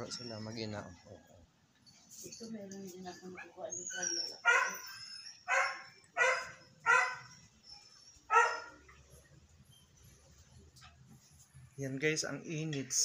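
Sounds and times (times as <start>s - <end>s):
small dog barking: 4.4s - 4.9s, 5.5s - 7.4s, 8.3s - 8.8s.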